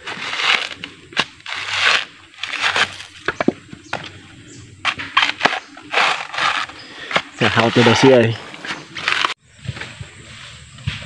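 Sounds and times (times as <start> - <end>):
dry crunching and cracking: 0.0 - 4.2, 4.8 - 9.4.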